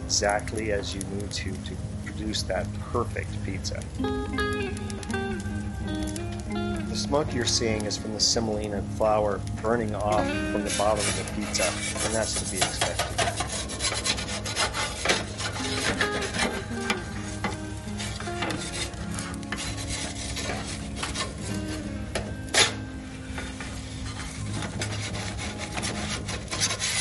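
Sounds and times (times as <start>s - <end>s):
metal peel scraping oven floor: 7.0s - 27.0s.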